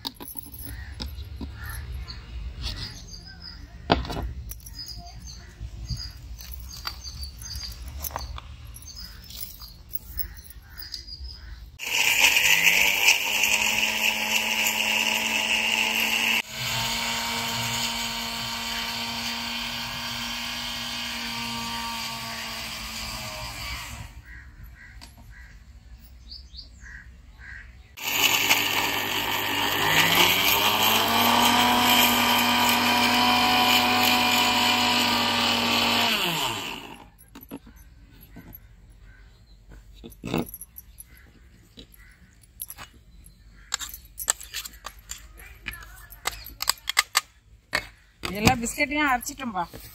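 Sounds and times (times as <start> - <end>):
mixer grinder motor whining: 11.8 - 24.2, 28.0 - 37.1.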